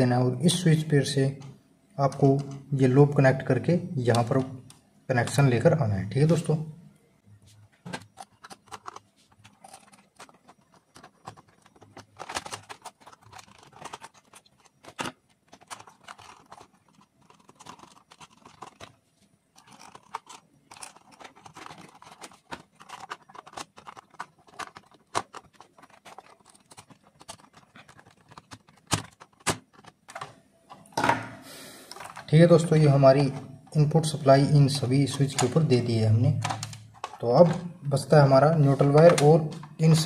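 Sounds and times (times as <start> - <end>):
wire clicks scrapes and rustles: 7.5 - 30.8.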